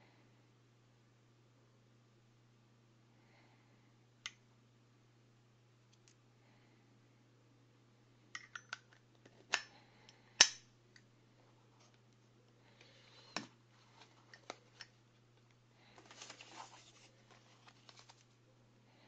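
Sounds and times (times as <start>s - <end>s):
foam and cardboard rustling: 16.0s - 18.4s.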